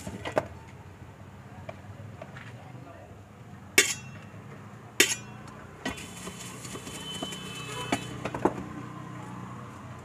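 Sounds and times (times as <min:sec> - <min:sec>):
puffed rice rattling in a tin: 0:06.0 - 0:07.6.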